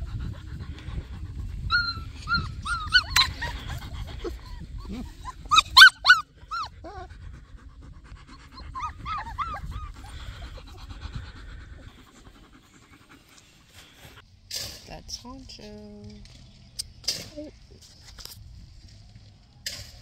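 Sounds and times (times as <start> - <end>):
puppies whining and yipping: 1.6 - 7.3, 8.3 - 12.2.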